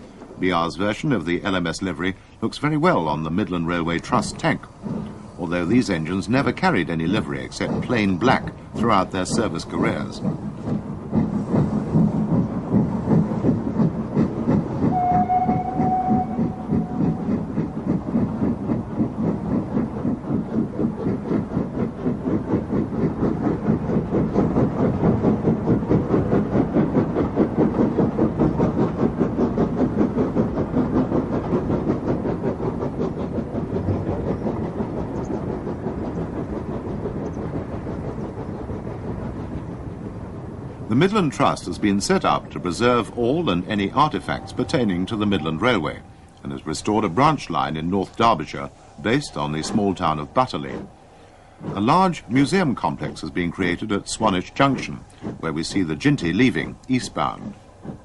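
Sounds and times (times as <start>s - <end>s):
steam locomotive exhaust beats: 0.0s - 58.0s
steam whistle blast: 14.9s - 17.4s.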